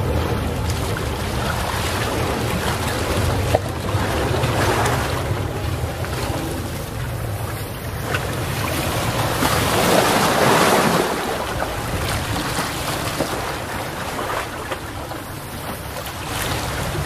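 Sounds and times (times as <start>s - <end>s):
sea waves washing onto shore: 0.0s - 17.0s
wind rumble on microphone: 0.0s - 17.0s.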